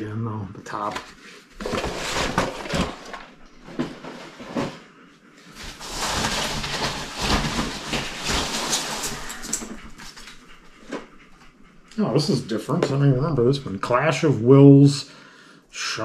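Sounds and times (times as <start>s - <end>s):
boxes rustling and scraping: 0.7s - 11.2s.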